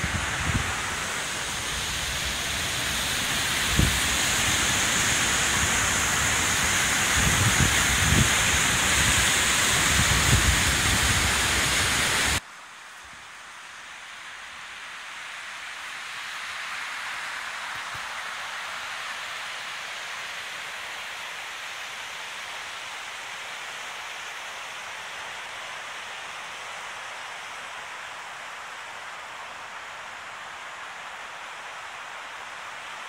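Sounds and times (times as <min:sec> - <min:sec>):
stream rushing over stones: 0:00.0 - 0:12.4.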